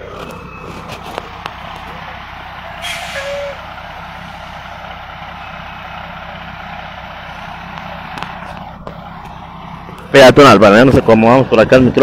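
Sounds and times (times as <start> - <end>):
heavy diesel engine running: 0.0 - 12.0.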